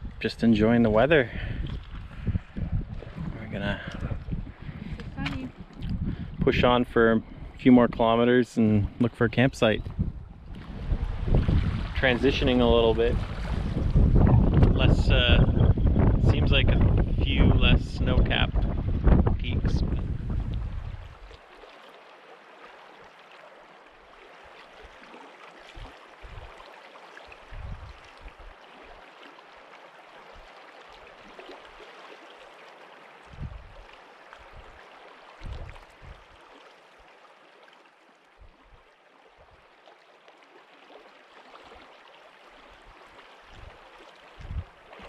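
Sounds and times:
wind thumping on microphone: 0.0s - 0.2s, 1.3s - 6.6s, 9.8s - 21.3s, 27.5s - 28.0s, 33.3s - 33.8s, 35.4s - 36.2s, 44.4s - 44.8s
river water rushing: 21.1s - 45.0s.

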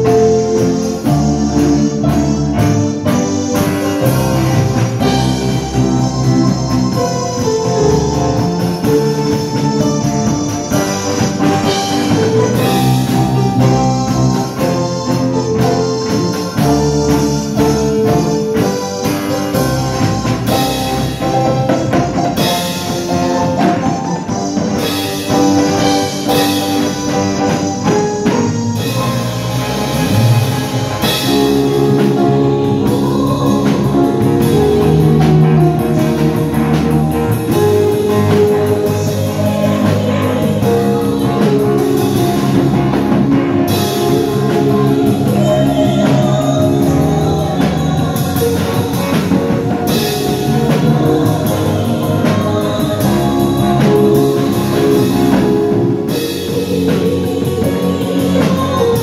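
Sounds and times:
live rock band playing: 0.0s - 59.0s
women singing into microphones: 31.9s - 35.3s, 38.0s - 43.0s, 43.7s - 55.4s, 56.1s - 59.0s.

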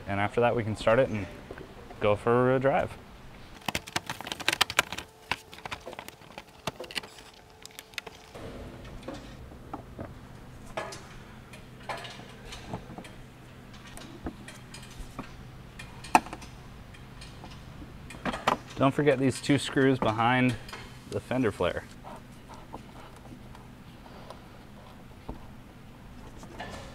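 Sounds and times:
plastic liner clicks and rattles: 3.6s - 8.3s.

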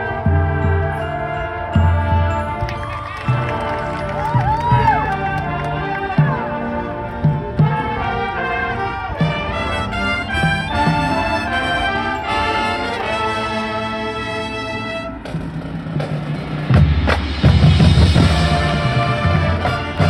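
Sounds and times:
brass section playing chords: 0.0s - 15.6s, 17.8s - 20.0s
drum hits: 15.3s - 20.0s.

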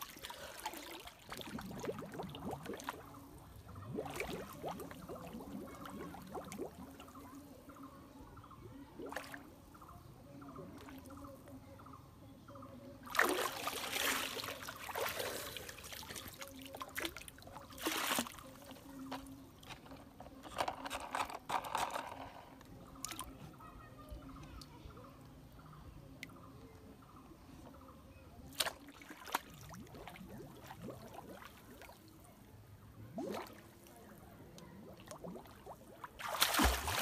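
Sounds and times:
water splashing and sloshing: 0.0s - 7.4s, 13.0s - 20.2s, 28.5s - 32.2s, 34.8s - 37.0s.

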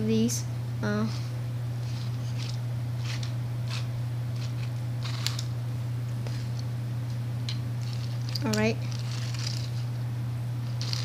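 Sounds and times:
low electrical hum: 0.0s - 11.0s
toy car clicks and rustles: 4.4s - 5.5s, 7.8s - 9.8s, 10.8s - 11.0s.

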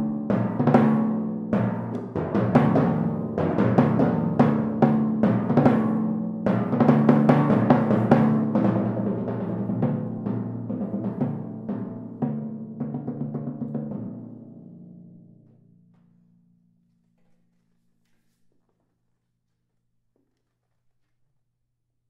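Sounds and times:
timpani strokes: 0.0s - 15.4s.

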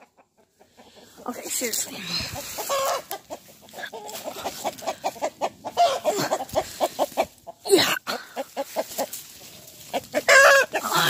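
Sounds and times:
chickens clucking: 0.0s - 11.0s
footsteps in dry leaves: 1.4s - 7.6s, 8.4s - 11.0s.

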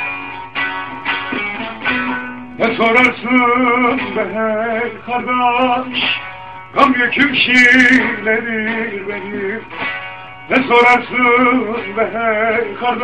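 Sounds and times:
long-necked lute strummed: 0.0s - 13.0s
man singing wordless notes: 2.6s - 9.7s, 10.4s - 13.0s.

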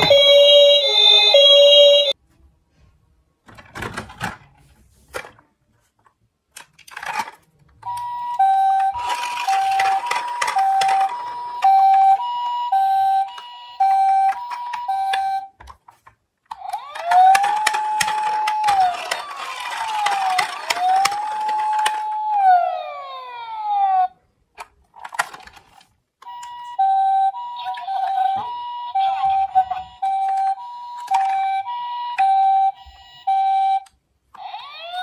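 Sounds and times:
toy electronic siren: 0.0s - 2.2s, 7.9s - 15.5s, 16.5s - 24.2s, 26.2s - 35.0s
plastic toy cars clattering: 3.4s - 12.2s, 14.0s - 23.1s, 24.5s - 26.6s, 29.3s - 31.6s.

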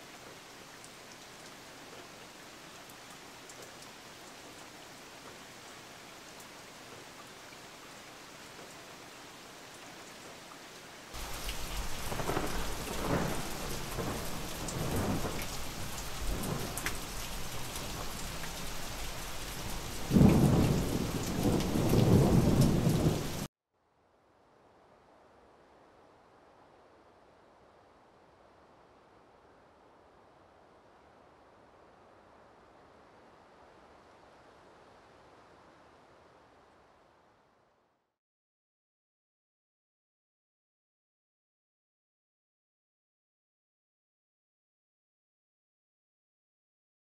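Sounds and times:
heavy rain: 0.0s - 23.5s
faint steady hiss: 0.0s - 38.0s
low rolls of thunder: 11.2s - 23.5s.

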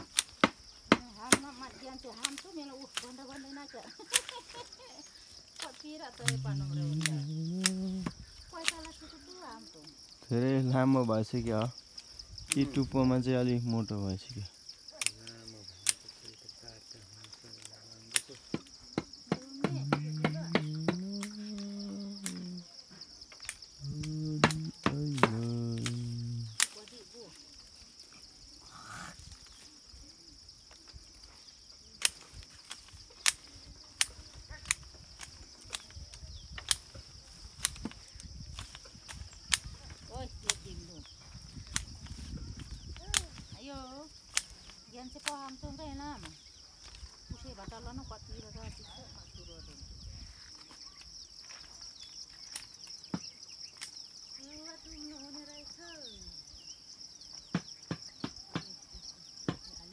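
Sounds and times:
high-pitched insect drone: 0.6s - 59.9s
sharp clicks: 5.6s - 9.0s, 19.3s - 22.6s, 23.4s - 26.9s.

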